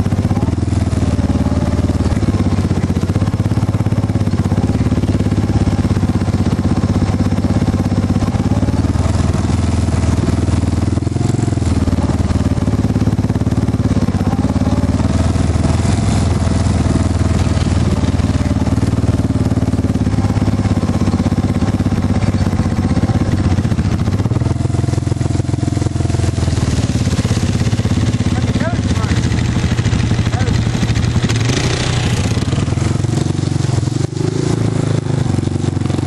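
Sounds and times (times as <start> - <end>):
atv engine running: 0.0 - 36.0.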